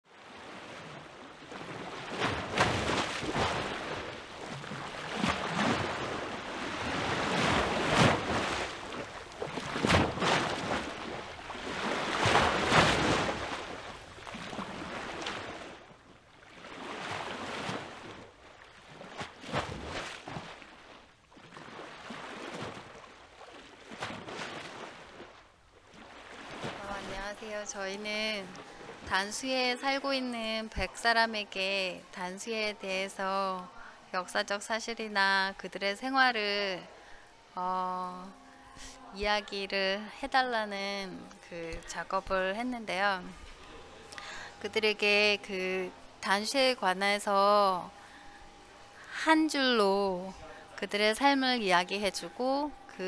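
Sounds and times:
water washing over rocks: 1.6 - 15.8.

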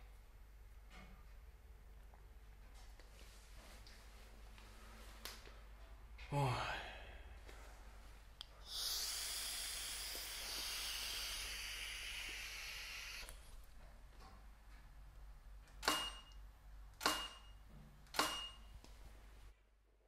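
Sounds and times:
blowing hiss: 8.6 - 13.4.

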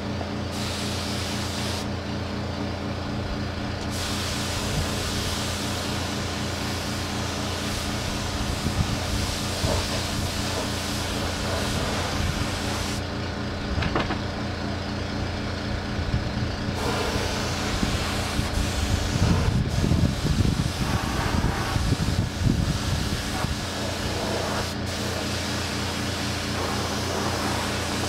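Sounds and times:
low motor hum: 0.0 - 28.0
paint spray gun hissing: 0.5 - 2.0, 3.8 - 13.1, 16.8 - 28.0.

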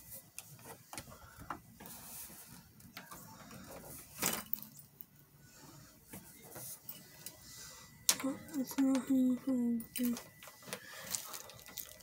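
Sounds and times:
small objects clicking and rubbing: 10.8 - 12.0.

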